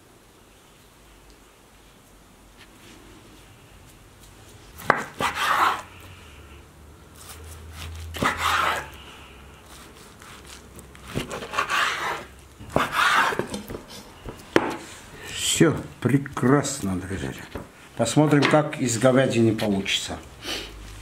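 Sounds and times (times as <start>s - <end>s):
knife slicing meat on wooden board: 4.8s - 5.9s, 8.2s - 9.0s, 10.2s - 13.9s.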